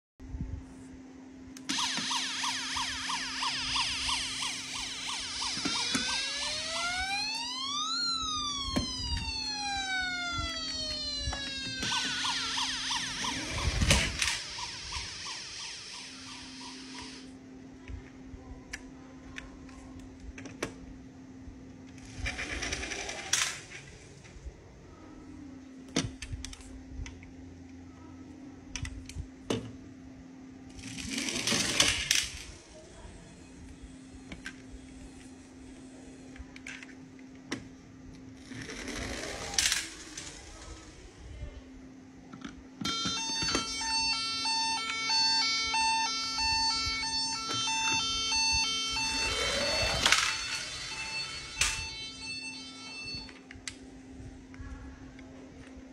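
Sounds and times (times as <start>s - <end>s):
toy electronic siren: 1.6s - 17.4s, 38.7s - 40.9s, 42.8s - 53.5s
toy car wheels rattling on ramp: 30.8s - 32.4s, 38.4s - 40.6s.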